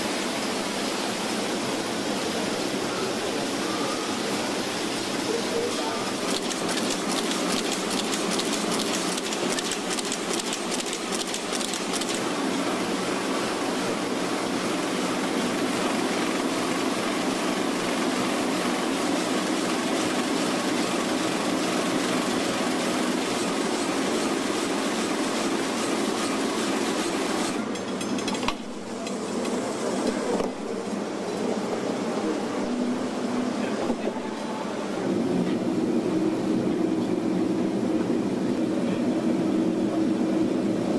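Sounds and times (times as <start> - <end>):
fast mechanical clicking: 6.2 - 12.3.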